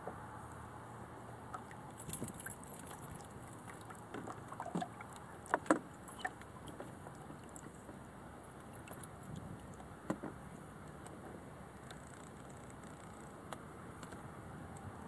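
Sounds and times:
dinghy fittings clinking and rattling: 2.0s - 3.8s.

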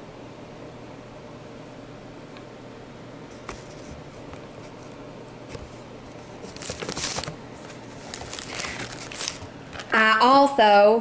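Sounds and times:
plastic packaging crinkling: 6.2s - 10.1s.

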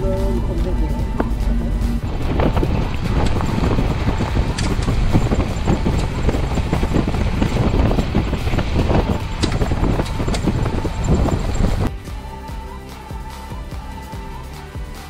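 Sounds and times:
car engine rumble: 0.0s - 12.1s
tyres crunching on gravel: 0.8s - 11.9s.

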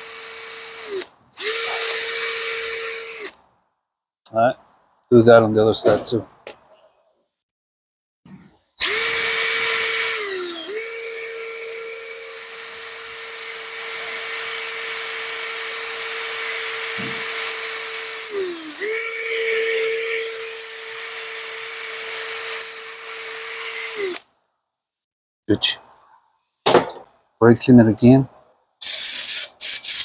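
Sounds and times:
drill with wire brush scrubbing metal: 0.0s - 3.4s, 8.8s - 24.2s, 28.8s - 30.0s.

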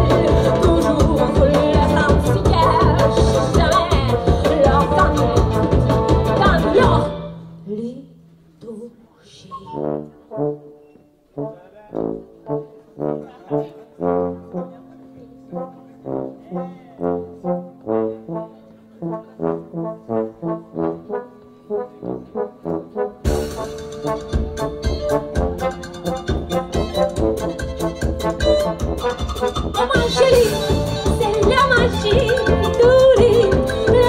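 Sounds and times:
band playing: 0.0s - 7.6s, 9.7s - 34.0s
low brass solo notes: 9.8s - 14.8s, 15.4s - 29.9s.

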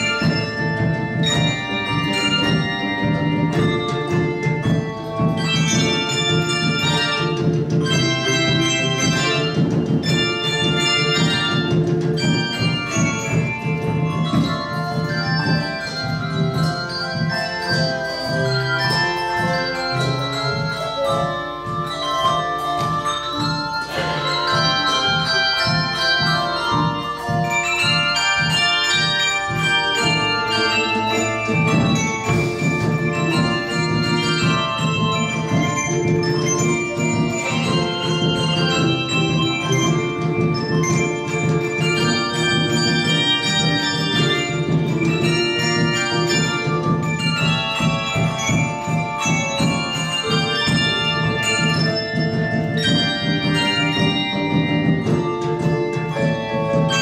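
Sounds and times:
handbells ringing music: 0.0s - 57.0s.

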